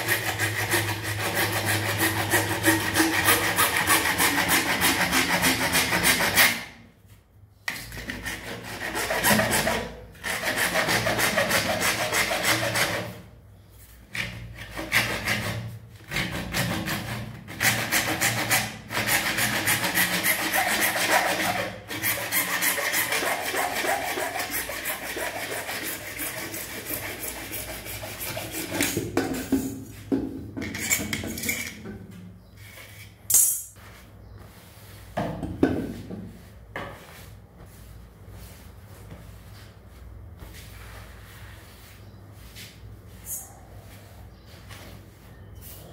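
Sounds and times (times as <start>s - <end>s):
hacksaw cutting plastic pipe: 0.0s - 6.8s, 7.7s - 13.3s, 14.1s - 29.8s.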